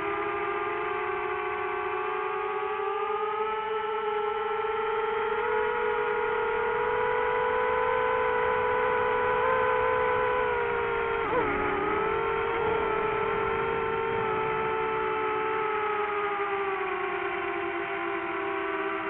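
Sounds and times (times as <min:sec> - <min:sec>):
drone propellers whining: 0:00.0 - 0:19.0.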